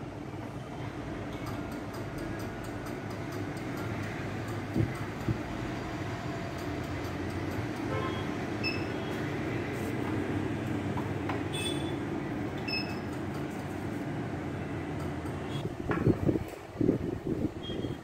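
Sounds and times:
short electronic beeps: 0:08.0 - 0:09.3.

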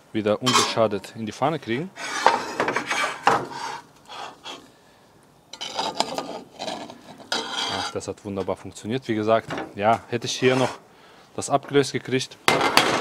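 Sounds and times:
utensil scraping a pan: 0:00.4 - 0:01.0, 0:02.0 - 0:04.7, 0:05.6 - 0:08.1, 0:10.2 - 0:10.8.

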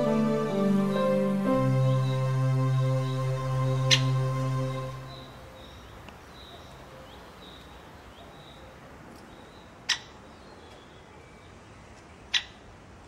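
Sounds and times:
background music: 0:00.0 - 0:05.6
small birds chirping: 0:00.0 - 0:12.6.

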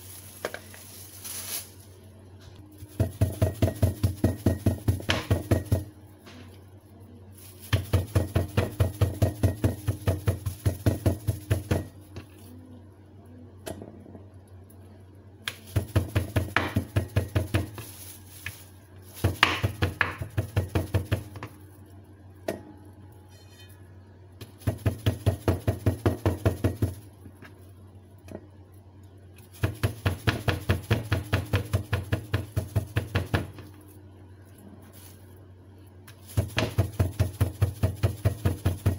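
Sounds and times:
knife chopping on wooden board: 0:03.0 - 0:05.9, 0:15.7 - 0:17.8, 0:19.2 - 0:21.4, 0:36.4 - 0:38.9.

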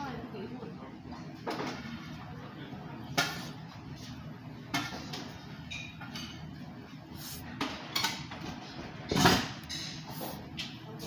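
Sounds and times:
tableware clinks: 0:05.7 - 0:06.4.

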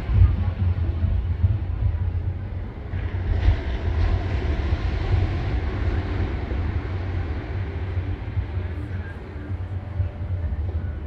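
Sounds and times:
wind buffeting microphone: 0:00.0 - 0:11.0
surf washing onto beach: 0:02.9 - 0:10.2.

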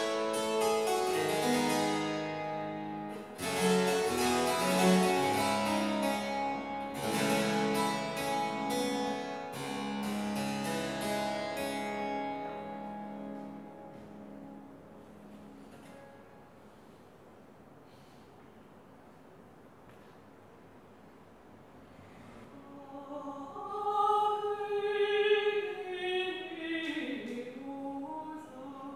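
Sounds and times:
solo harpsichord: 0:00.0 - 0:16.4.

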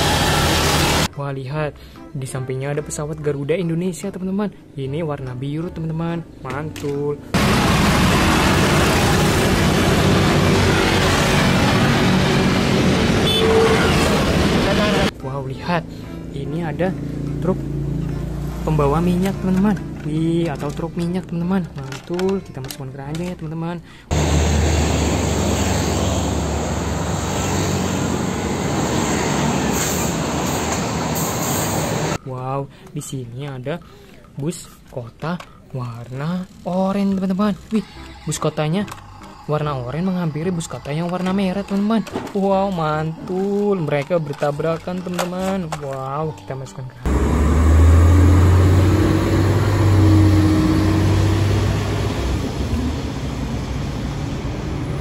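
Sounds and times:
street traffic noise: 0:00.0 - 0:01.1, 0:06.3 - 0:22.4, 0:23.9 - 0:32.2, 0:47.0 - 0:55.0
truck diesel engine: 0:00.0 - 0:01.1, 0:07.4 - 0:15.1, 0:24.1 - 0:32.2, 0:47.1 - 0:55.0
motorcycles: 0:07.4 - 0:15.2, 0:15.8 - 0:20.8, 0:47.1 - 0:55.0.

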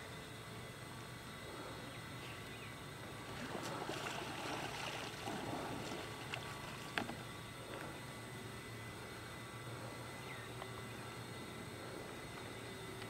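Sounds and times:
paddle water splashing: 0:03.2 - 0:07.8.

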